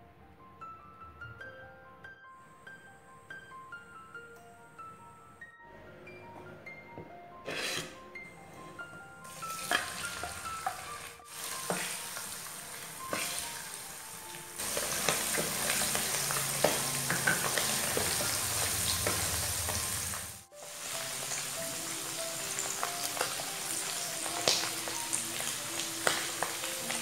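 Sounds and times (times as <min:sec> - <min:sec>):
food deep-frying in oil: 0:09.3 - 0:27.0.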